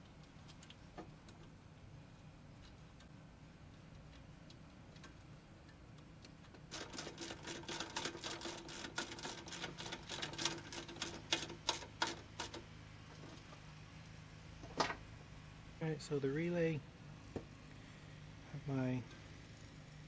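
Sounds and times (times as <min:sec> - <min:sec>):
wire connectors clicking and rattling: 0:06.5 - 0:13.4.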